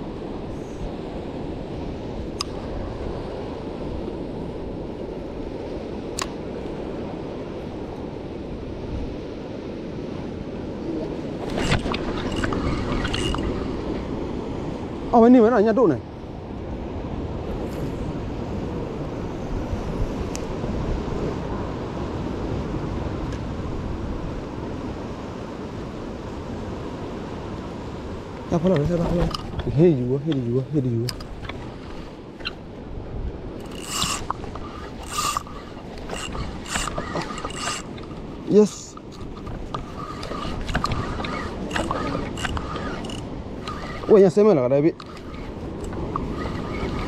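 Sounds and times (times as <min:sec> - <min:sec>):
ocean swell washing against rocks: 0:00.0 - 0:47.0
wind rumble on microphone: 0:00.0 - 0:47.0
waves breaking on rocks: 0:26.2 - 0:47.0.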